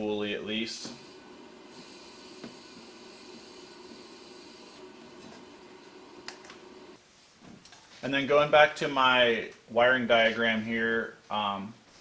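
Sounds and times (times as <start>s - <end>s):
steady hiss: 0.0s - 7.4s.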